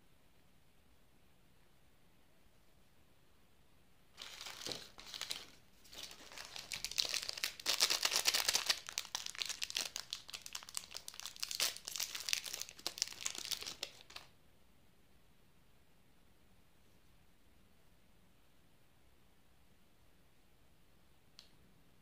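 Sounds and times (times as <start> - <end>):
plastic wrapper crinkling: 4.2 - 14.3.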